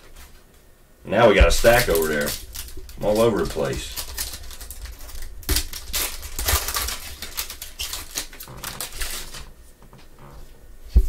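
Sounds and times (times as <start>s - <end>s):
foil wrapper crinkling: 1.2s - 9.6s
cards being handled: 1.4s - 9.5s.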